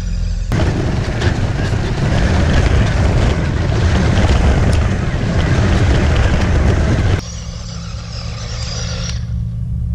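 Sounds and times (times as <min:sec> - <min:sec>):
steady low hum: 0:00.0 - 0:09.9
toy truck driving over gravel: 0:00.6 - 0:09.2.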